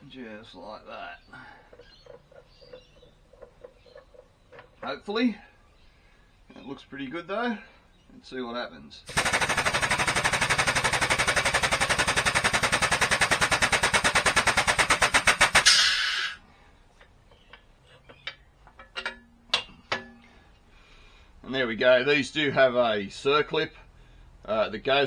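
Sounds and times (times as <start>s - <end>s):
hydraulic press pump pulsing: 9.1s - 16.4s
short hiss: 15.6s - 16.4s
metal arm clunks: 17.4s - 20.4s.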